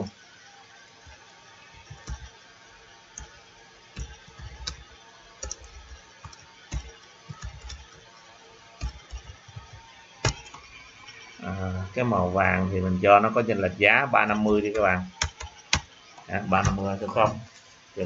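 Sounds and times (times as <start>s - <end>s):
keyboard typing: 1.8s - 2.4s, 3.1s - 8.1s, 8.8s - 11.3s, 14.1s - 17.4s.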